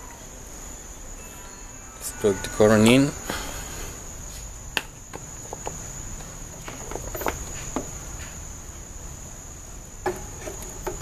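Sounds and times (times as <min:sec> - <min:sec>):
high-pitched whine: 0:00.0 - 0:06.1.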